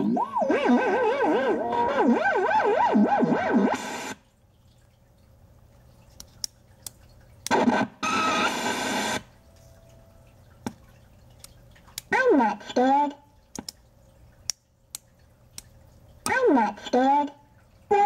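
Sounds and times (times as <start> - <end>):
glitching electronic toy sound: 0.0 - 4.2.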